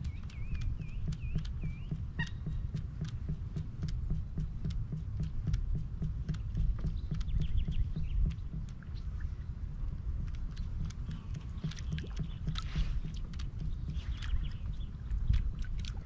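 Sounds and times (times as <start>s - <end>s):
bird whistling: 0.0s - 2.6s
low pulsing rumble: 0.0s - 16.0s.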